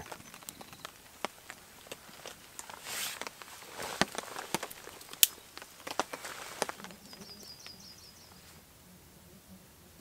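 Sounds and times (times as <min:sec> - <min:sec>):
campfire crackling: 0:00.0 - 0:08.8
songbird trilling: 0:06.9 - 0:08.4.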